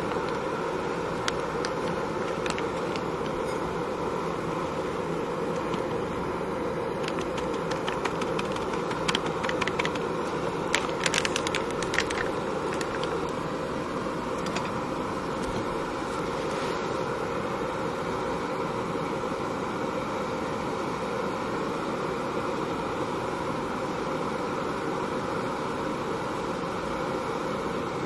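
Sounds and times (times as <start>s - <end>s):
steady rushing noise: 0.0s - 19.4s
coffee gear clicking and rattling: 7.0s - 13.4s.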